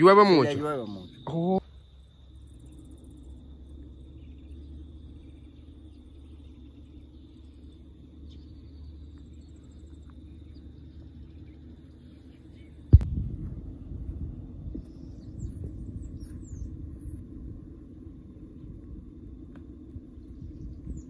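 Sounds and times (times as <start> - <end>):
high-pitched insect trill: 0.0 - 13.1, 13.7 - 21.0
low steady rumble: 1.6 - 21.0
faint ticks: 19.1 - 20.0.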